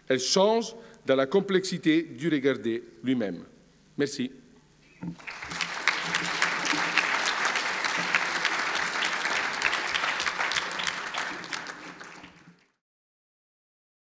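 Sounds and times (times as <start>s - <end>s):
audience applauding: 5.2s - 12.8s.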